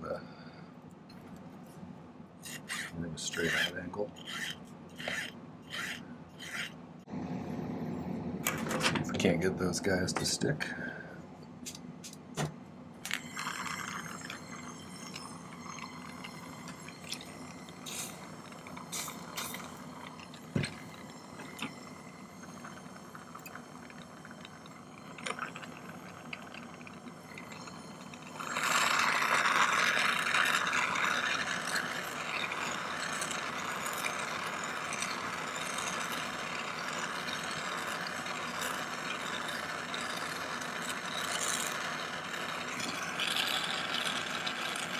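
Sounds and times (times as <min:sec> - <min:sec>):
soldering torch flame hissing: 0:13.2 - 0:29.9.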